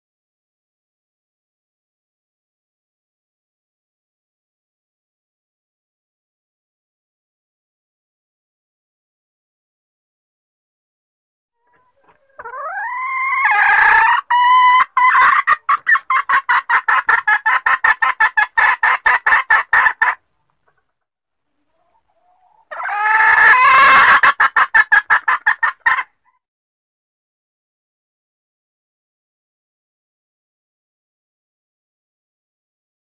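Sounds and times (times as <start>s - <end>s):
hen squawking and clucking: 11.6s - 20.9s, 21.6s - 26.4s.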